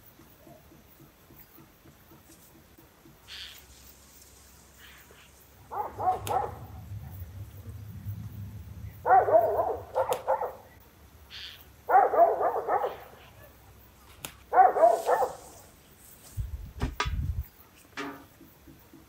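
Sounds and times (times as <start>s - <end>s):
dog barking: 5.6s - 7.2s, 9.0s - 10.8s, 11.9s - 13.8s, 14.5s - 15.7s
low thumps: 5.6s - 10.8s.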